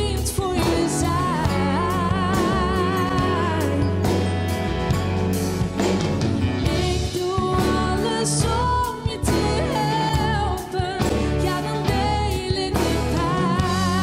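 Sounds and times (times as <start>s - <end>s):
woman singing into a microphone: 0.0s - 4.4s, 6.6s - 14.0s
live band playing: 0.0s - 14.0s.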